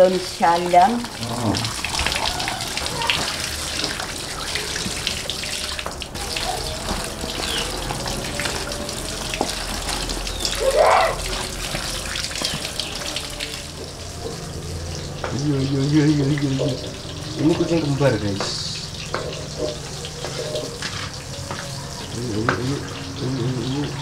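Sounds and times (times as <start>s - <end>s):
water running from hose: 0.0s - 24.0s
rising cry: 1.2s - 3.8s, 4.4s - 13.8s.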